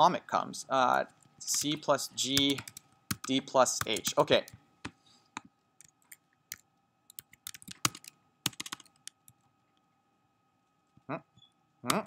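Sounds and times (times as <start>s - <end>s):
faint steady hum: 0.0s - 12.0s
typing on keyboard: 1.5s - 4.6s, 5.8s - 9.4s.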